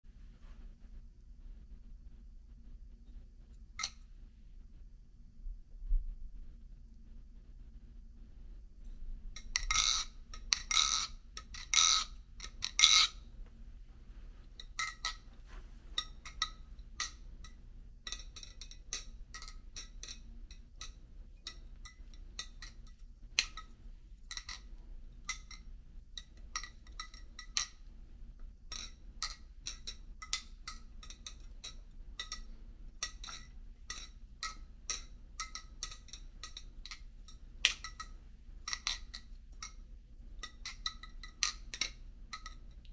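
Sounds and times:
butterfly knife clicking and clacking: 9.4 - 13.2, 16.0 - 23.7, 24.3 - 27.9, 28.7 - 39.8, 40.4 - 42.8.

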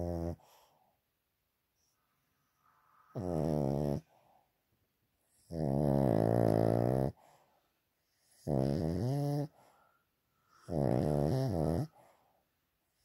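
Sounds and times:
dog snoring: 0.0 - 0.7, 3.1 - 4.2, 5.3 - 7.4, 8.2 - 9.8, 10.5 - 12.2.

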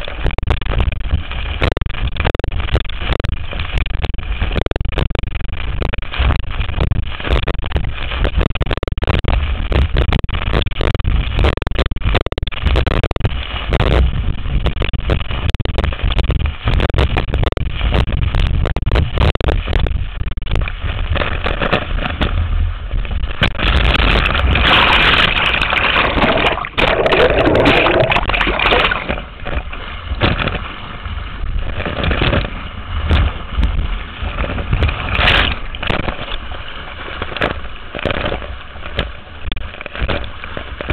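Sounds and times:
wind buffeting microphone: 0.0 - 40.9
hull slapping through water: 23.2 - 31.0
water spray spattering: 24.0 - 29.5.

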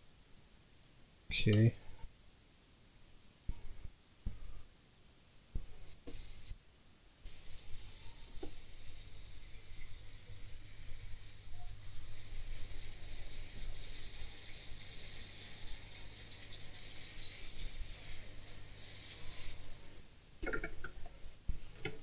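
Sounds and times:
gas jet hissing: 6.0 - 6.5, 7.3 - 20.0.

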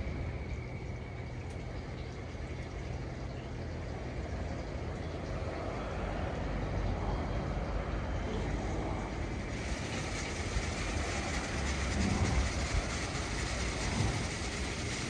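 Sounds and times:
rush of air from blowers: 5.6 - 15.0.

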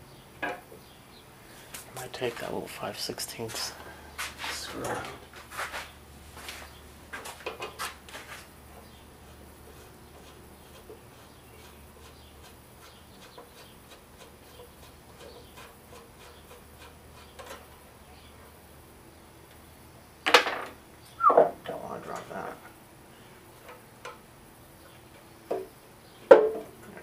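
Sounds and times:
low steady hum: 0.0 - 13.2.

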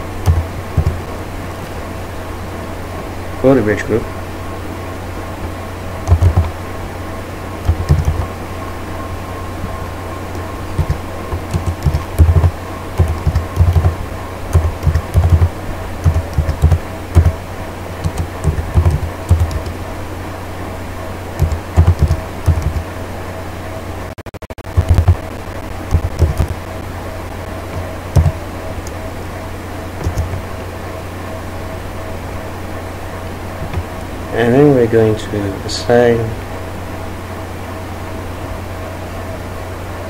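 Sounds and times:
steady electrical hum: 0.0 - 40.0
typing on computer keyboard: 0.2 - 1.1, 6.1 - 6.6, 7.6 - 8.3, 10.4 - 17.4, 18.0 - 19.8, 21.4 - 22.8, 24.7 - 25.2, 25.9 - 26.6, 27.7 - 29.0, 30.0 - 30.4.

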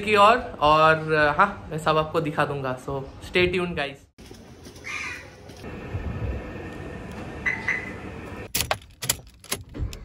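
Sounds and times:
car key jangling into ignition: 8.5 - 10.0.

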